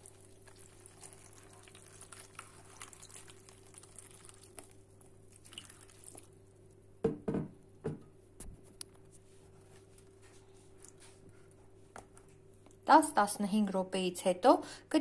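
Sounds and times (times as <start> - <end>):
water trickling into container: 0.0 - 6.4.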